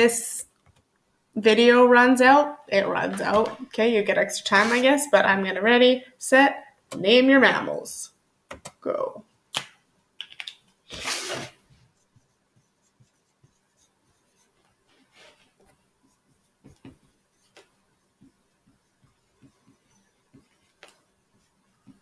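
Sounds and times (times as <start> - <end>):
pen writing on paper: 16.1 - 22.0.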